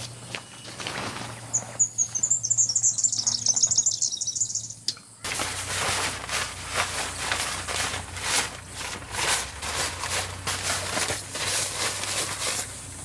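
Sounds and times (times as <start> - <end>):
rustling scuffing noise: 0.0 - 1.8, 5.3 - 12.8
small bird twittering: 1.5 - 5.2.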